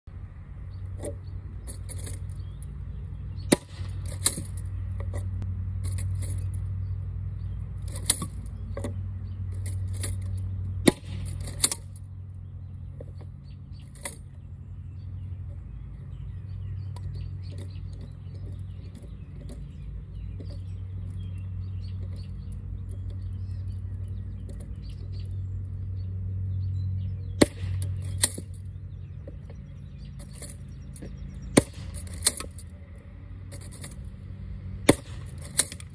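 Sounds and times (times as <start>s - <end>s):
metallic clicking and clattering: 1.0s - 2.7s, 3.6s - 6.6s, 7.8s - 12.1s, 13.0s - 14.3s, 27.5s - 32.7s, 33.5s - 34.1s, 34.9s - 35.9s.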